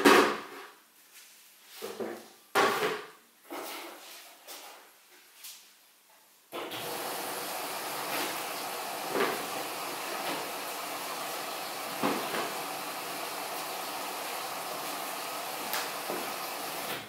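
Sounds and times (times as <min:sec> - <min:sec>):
washing machine filling with water: 0:06.6 - 0:17.0.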